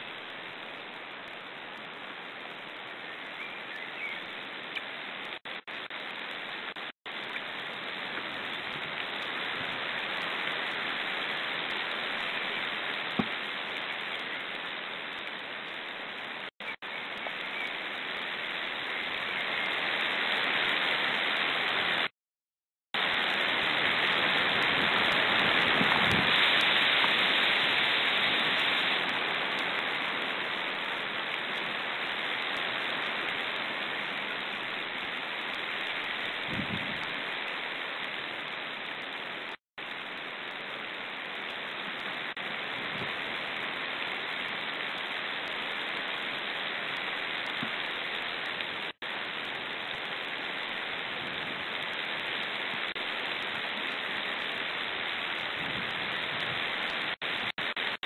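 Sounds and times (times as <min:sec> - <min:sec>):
wind hiss on microphone: 0:07.2 - 0:14.9, 0:23.0 - 0:38.4, 0:41.6 - 0:48.6, 0:49.2 - 0:58.0.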